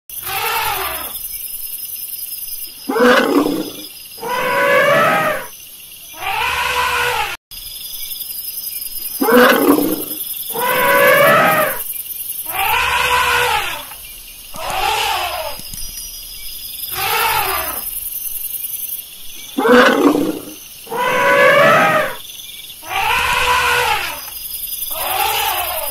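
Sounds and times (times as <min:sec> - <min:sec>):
elephants trumpeting: 0:00.2 - 0:01.2, 0:02.9 - 0:05.5, 0:06.2 - 0:07.4, 0:09.2 - 0:11.8, 0:12.5 - 0:13.9, 0:14.6 - 0:15.6, 0:16.9 - 0:17.9, 0:19.6 - 0:22.2, 0:22.8 - 0:24.3, 0:24.9 - 0:25.9.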